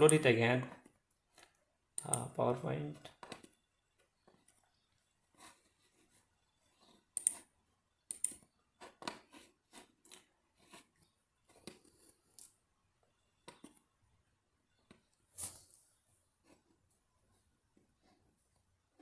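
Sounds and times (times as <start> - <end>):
computer mouse clicks: 1.3 - 2.3, 7.2 - 7.4, 8.1 - 9.2.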